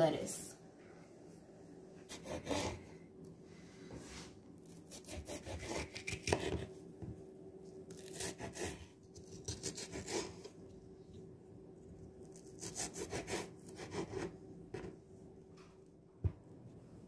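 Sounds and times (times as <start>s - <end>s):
knife slicing peppers on wooden board: 4.8s - 6.7s.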